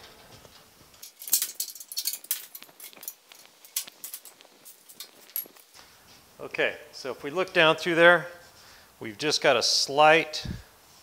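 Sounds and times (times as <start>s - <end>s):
metal clamps clicking and clinking: 1.0s - 5.6s.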